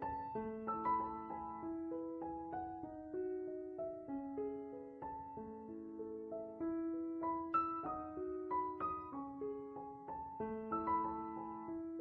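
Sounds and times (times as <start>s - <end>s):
slow piano melody: 0.0s - 12.0s.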